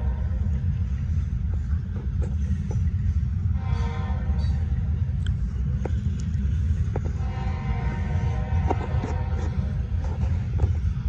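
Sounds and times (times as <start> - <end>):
train wheels rumbling on rail: 0.0 - 11.0.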